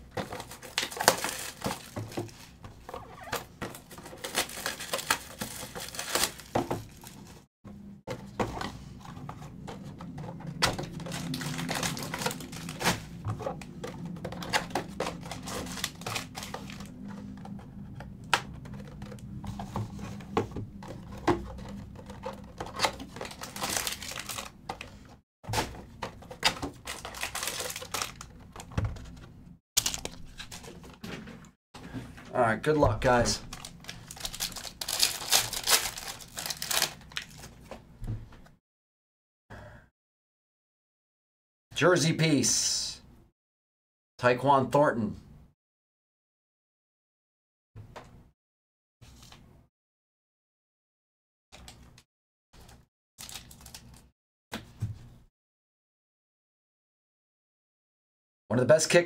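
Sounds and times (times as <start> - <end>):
foil packs rustling: 0.2 - 2.6, 3.7 - 7.4, 10.6 - 13.2, 14.4 - 17.0, 22.2 - 25.1, 25.7 - 29.1, 29.8 - 31.0, 33.0 - 37.6, 52.6 - 54.0
plastic shrink-wrap crinkling: 0.4 - 2.0, 4.2 - 7.4, 10.9 - 12.9, 23.1 - 24.5, 26.8 - 28.3, 33.4 - 37.5, 53.2 - 54.0.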